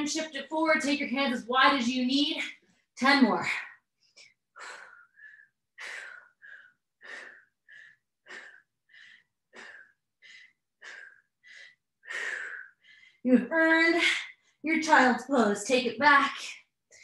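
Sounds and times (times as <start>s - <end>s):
woman breathing hard: 4.2s - 13.3s.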